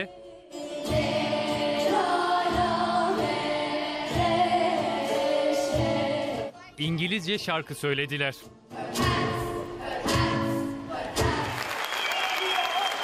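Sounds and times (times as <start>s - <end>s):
children's choir singing: 0.0s - 6.5s, 8.7s - 11.7s.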